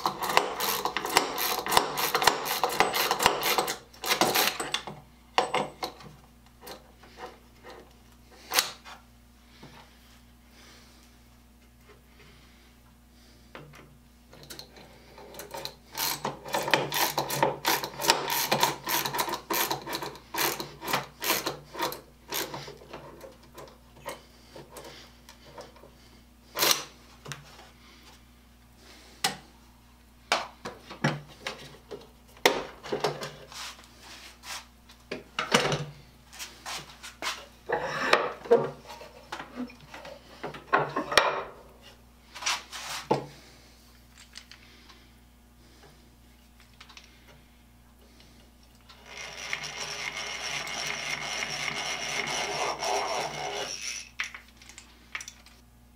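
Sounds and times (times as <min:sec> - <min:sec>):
push drill rasping into wood: 0:00.0 - 0:04.8, 0:16.0 - 0:22.6, 0:49.0 - 0:54.2.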